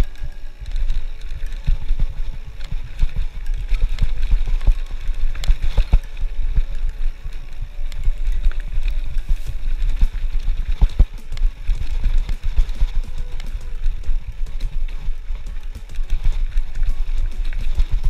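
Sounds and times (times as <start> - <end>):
bike rattling on loose gravel: 0.0 - 18.0
wind buffeting microphone: 0.0 - 18.0.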